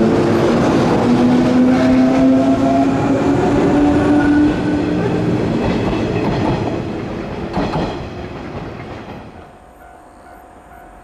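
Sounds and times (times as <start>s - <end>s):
train running rumble: 0.0s - 11.0s
wheels clacking over rail joint: 5.6s - 9.5s.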